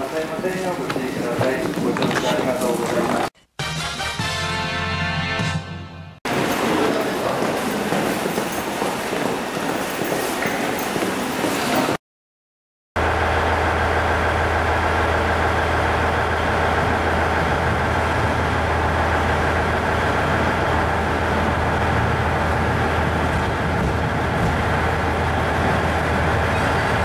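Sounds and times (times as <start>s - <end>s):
electric train low hum: 13.0s - 27.0s.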